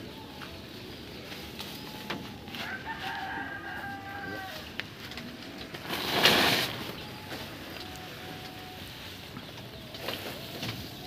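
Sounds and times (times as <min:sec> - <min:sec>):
rooster crowing: 0:02.5 - 0:04.7.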